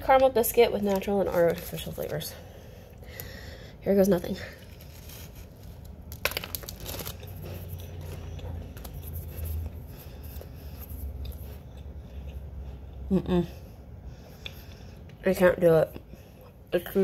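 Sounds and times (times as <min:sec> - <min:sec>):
biscuit crunching: 0:04.5 - 0:12.3.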